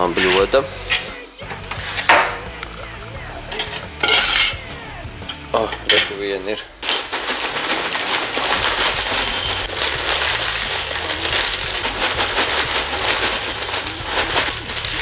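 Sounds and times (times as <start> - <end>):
cereal flakes rattling into bowl: 6.8 - 15.0
plastic bag crackling: 6.8 - 15.0.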